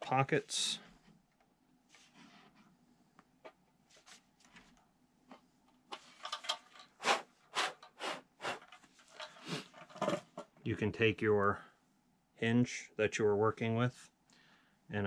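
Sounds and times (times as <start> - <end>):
short sharp puffs of breath: 7.0 - 8.6.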